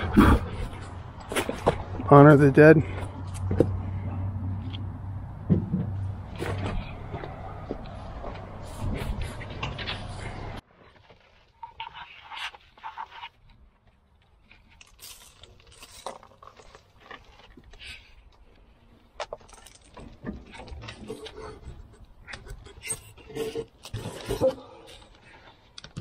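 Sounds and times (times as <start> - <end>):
debris rustling and scraping: 5.5 - 26.0.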